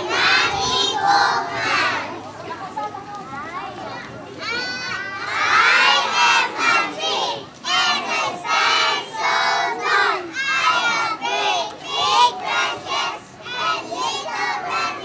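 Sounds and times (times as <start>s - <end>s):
children chanting in unison: 0.0s - 2.1s, 5.1s - 15.0s.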